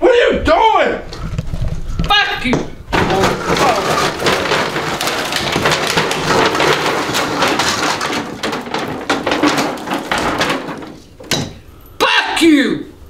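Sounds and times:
plastic ornaments rattling in packaging: 2.3s - 12.0s.

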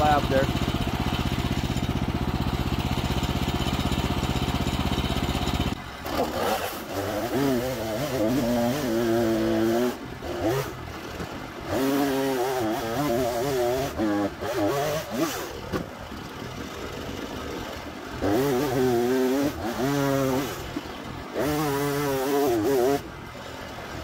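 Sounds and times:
gas engine idling: 0.0s - 6.4s
small engine revving: 0.0s - 24.0s.

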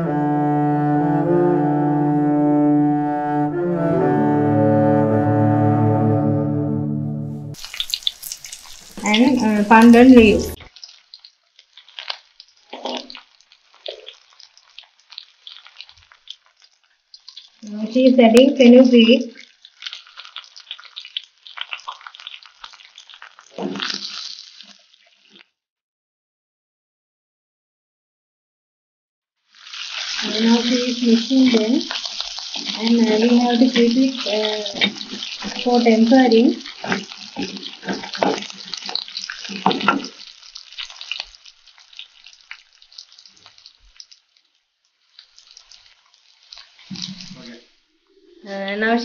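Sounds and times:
seeds crackling in hot oil: 7.5s - 25.5s, 29.4s - 49.0s
wooden spoon stirring: 31.5s - 40.9s
ladle stirring in pot: 36.6s - 41.0s.

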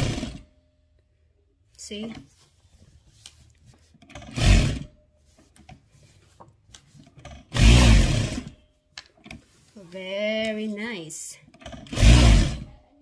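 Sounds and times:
fabric rustling: 2.2s - 4.0s, 5.1s - 7.2s, 8.8s - 11.0s.

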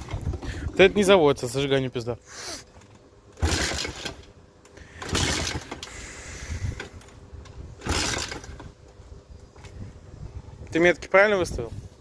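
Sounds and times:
motorbike engine turning over: 0.0s - 1.1s, 2.8s - 8.8s.

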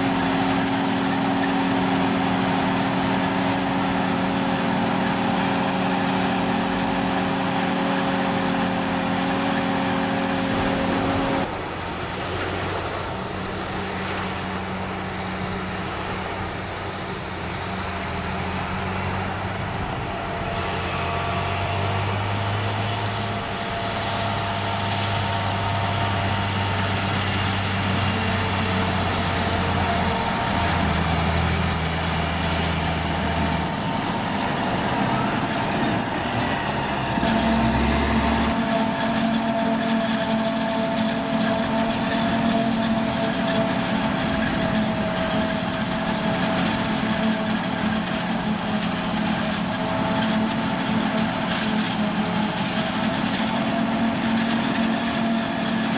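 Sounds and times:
steady machine whine: 0.0s - 55.9s
tractor engine running: 0.0s - 55.9s
forage harvester chopping: 17.9s - 55.9s.

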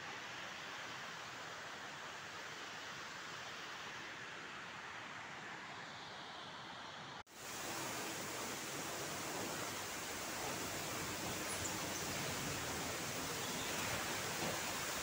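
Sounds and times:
waterfall splashing onto rocks: 7.3s - 15.0s.

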